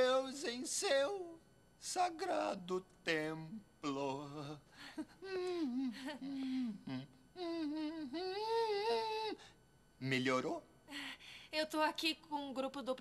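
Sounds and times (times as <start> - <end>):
man singing a hymn: 0.0 - 4.7.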